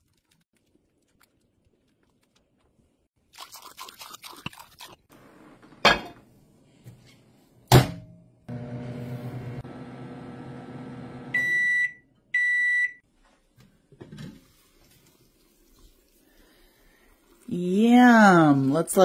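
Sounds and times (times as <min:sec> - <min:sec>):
water pouring into glass jars: 0:03.2 - 0:05.1
microwave oven humming: 0:08.5 - 0:11.9.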